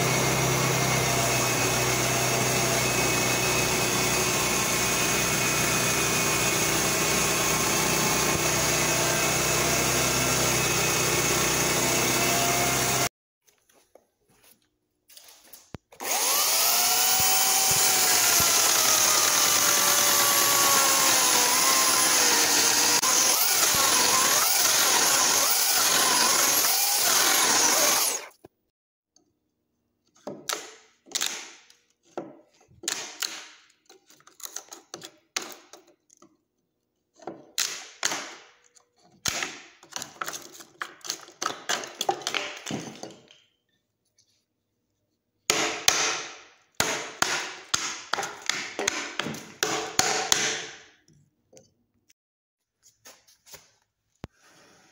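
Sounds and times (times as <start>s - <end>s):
power saw cutting log: 0.0s - 13.1s, 16.0s - 28.4s
chisel cracking and knocking wood: 37.2s - 43.2s, 45.5s - 50.8s.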